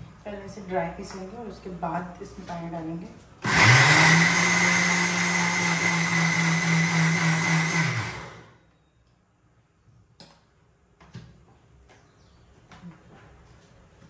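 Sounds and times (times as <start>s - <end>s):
mixer grinder motor whining: 3.4s - 8.6s.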